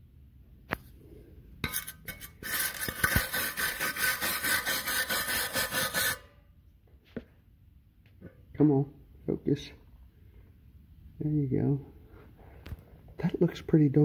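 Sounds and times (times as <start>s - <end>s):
wire brush scrubbing metal: 1.6s - 6.4s.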